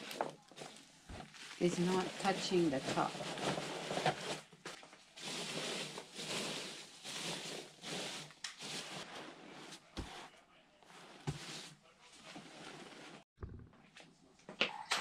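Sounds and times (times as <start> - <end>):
packing peanuts rustling in a box: 0.0 - 10.0.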